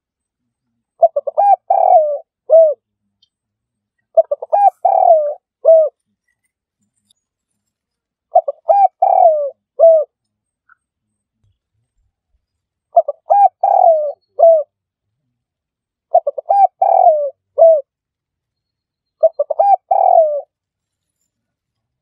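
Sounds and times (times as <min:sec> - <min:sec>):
dove cooing: 0:01.0 - 0:02.8, 0:04.1 - 0:06.0, 0:08.3 - 0:10.2, 0:12.9 - 0:14.7, 0:16.1 - 0:17.9, 0:19.2 - 0:20.5.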